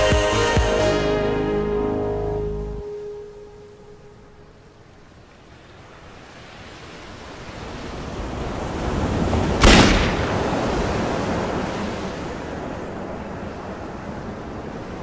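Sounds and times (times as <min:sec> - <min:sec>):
wind: 0:00.0 - 0:15.0
handgun shot: 0:09.6 - 0:10.2.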